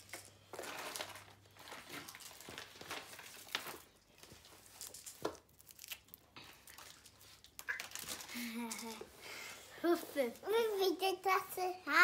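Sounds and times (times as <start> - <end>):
foil wrapping crinkling: 0.0 - 9.0.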